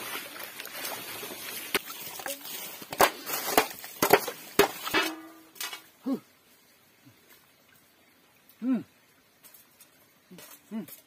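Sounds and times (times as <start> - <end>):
water splashing: 0.0 - 6.2.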